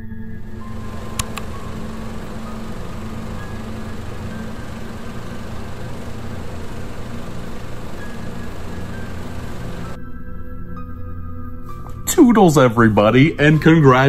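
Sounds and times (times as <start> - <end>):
faint music: 0.0 - 14.0
projector mechanical whirring: 0.1 - 10.0
sharp projector clicks: 0.6 - 10.0.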